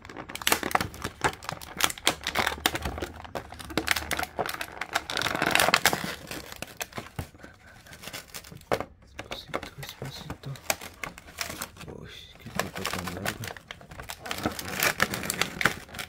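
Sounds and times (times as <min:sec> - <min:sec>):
plastic packaging crinkling: 0:00.0 - 0:16.0.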